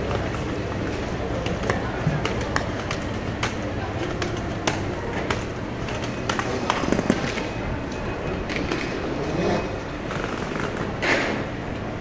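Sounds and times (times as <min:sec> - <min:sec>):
rush of background noise: 0:00.0 - 0:12.0
luggage knocks and clicks: 0:01.5 - 0:07.4.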